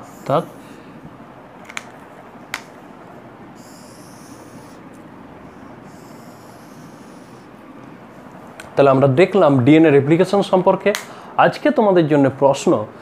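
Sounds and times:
marker squeaking on whiteboard: 0.0 - 0.6, 3.6 - 7.5
room hum: 0.0 - 13.0.

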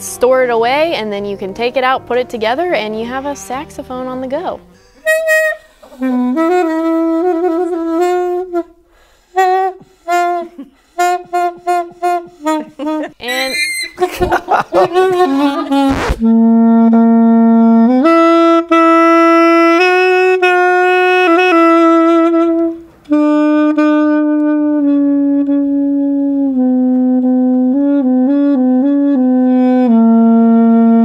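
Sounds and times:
pocket saxophone playing: 4.7 - 31.0.

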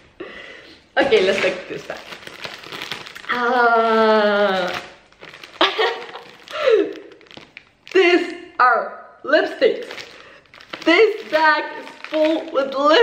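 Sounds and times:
plastic bag crinkling: 1.0 - 8.4, 9.7 - 13.0.

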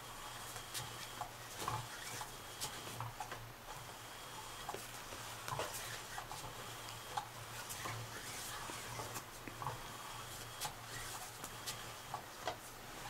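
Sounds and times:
toy motor hum: 0.3 - 4.8.

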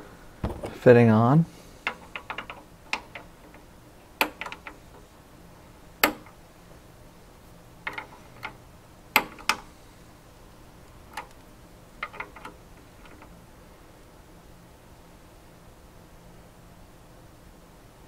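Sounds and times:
fitting tool clicks and taps: 6.0 - 6.3.

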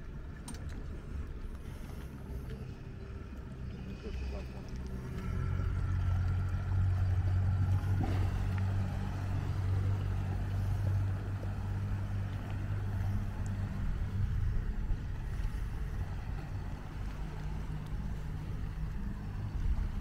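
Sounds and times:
outboard motor droning: 0.0 - 20.0.

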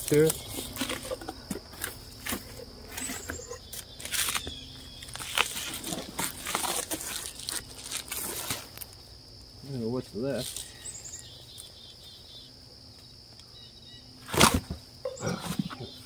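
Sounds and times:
foil crinkling: 0.0 - 9.0, 10.4 - 10.9
insects chirring: 0.0 - 16.0.

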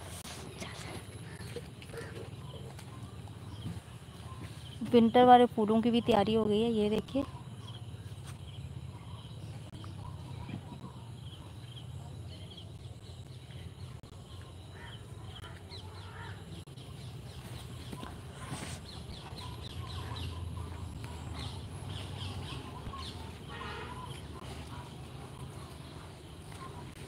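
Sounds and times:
birds chirping: 0.4 - 27.0
steady low rumble: 16.5 - 27.0.

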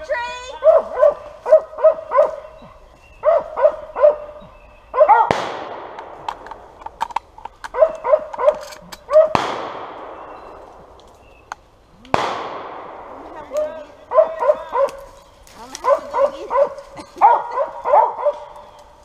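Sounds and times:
dogs barking: 0.6 - 5.4, 7.6 - 9.4, 13.8 - 18.8
gunshots echoing: 5.0 - 11.0, 12.1 - 15.0.

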